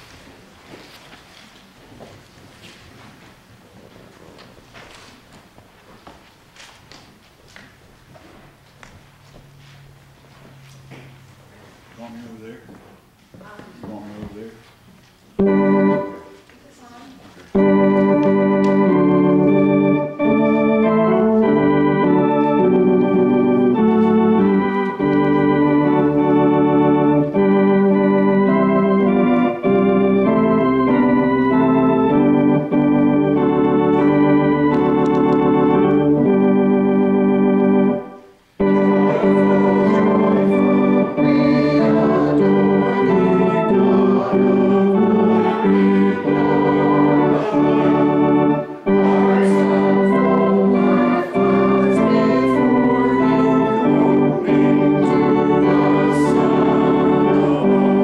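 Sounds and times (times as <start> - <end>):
church organ chords: 15.4 - 16.4, 17.5 - 58.0.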